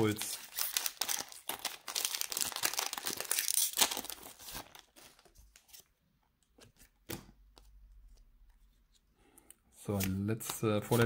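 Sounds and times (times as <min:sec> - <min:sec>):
foil wrapper tearing and crinkling: 0:00.0 - 0:05.2.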